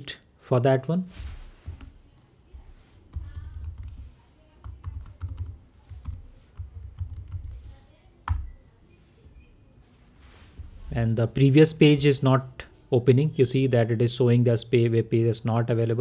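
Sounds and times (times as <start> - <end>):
computer keyboard typing: 3.1 - 8.6.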